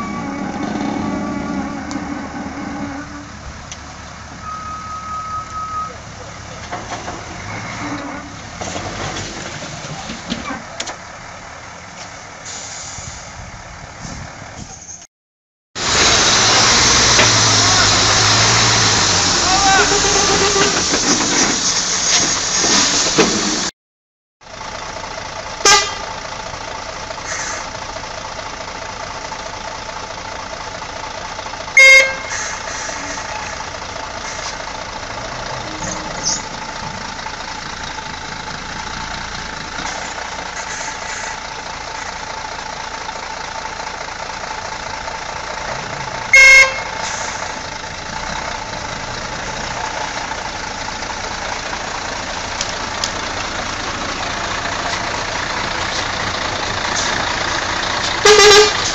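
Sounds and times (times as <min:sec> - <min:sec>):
heavy truck engine running: 0:00.0 - 0:15.0, 0:15.8 - 0:23.7, 0:24.4 - 0:58.9
truck horn toot: 0:04.4 - 0:06.0, 0:25.6 - 0:26.1, 0:31.8 - 0:33.6, 0:46.3 - 0:47.4, 0:58.1 - 0:58.9.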